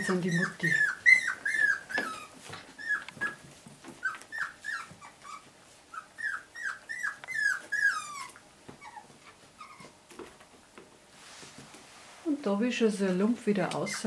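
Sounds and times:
puppies whimpering: 0.0 - 10.2.

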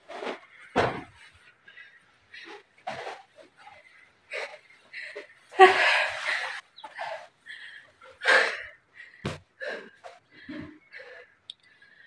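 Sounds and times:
woman breathing hard and laughing: 4.4 - 8.7.

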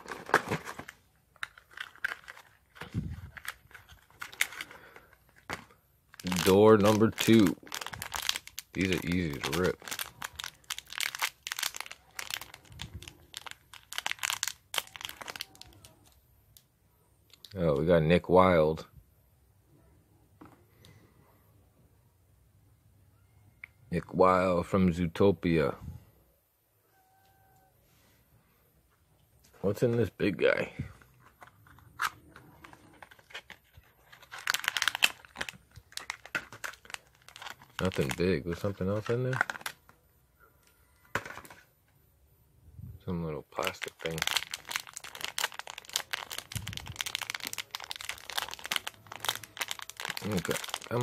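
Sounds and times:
foil wrapper tearing and crinkling: 0.0 - 16.1, 32.0 - 39.8, 43.6 - 51.0.

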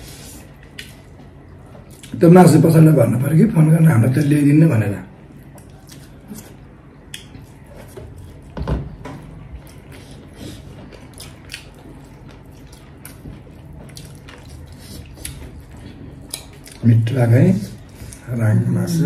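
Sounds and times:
chewing: 0.0 - 2.2, 5.2 - 17.0.

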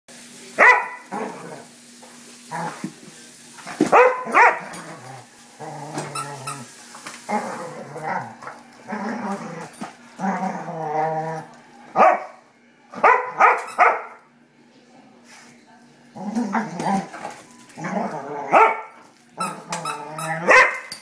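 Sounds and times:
dog barking: 0.6 - 1.1, 3.9 - 4.7, 12.0 - 12.4, 13.0 - 14.2, 18.5 - 18.9, 20.4 - 20.9
dog growling low: 4.8 - 6.7, 7.3 - 11.6, 16.1 - 17.2, 17.8 - 18.6.

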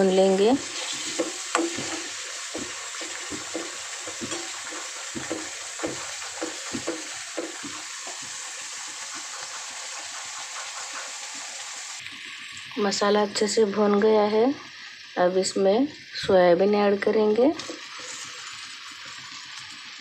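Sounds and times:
paste sizzling in hot oil: 0.0 - 13.7, 17.0 - 20.0
metal spoon scraping a pan: 0.6 - 7.8.

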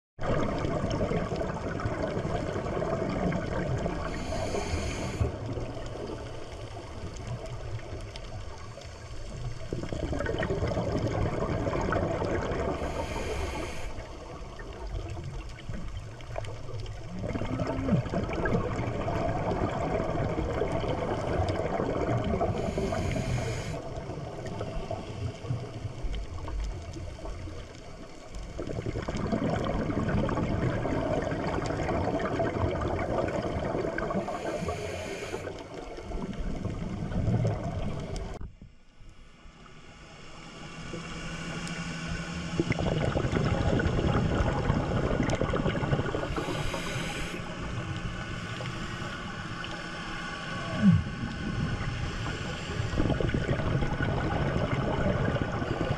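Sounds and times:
exhaled bubbles rumbling underwater: 0.2 - 38.6, 40.6 - 55.9
diver inhaling through regulator: 3.8 - 7.2, 12.6 - 14.4, 21.0 - 25.9, 34.0 - 36.2, 45.9 - 53.5.

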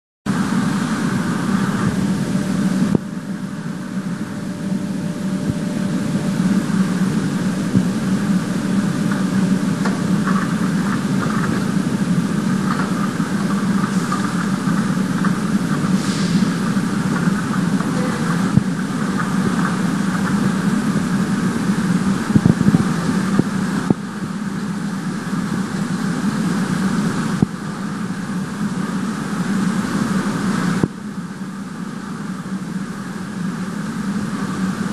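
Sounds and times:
machinery droning with low hum: 0.3 - 34.9.

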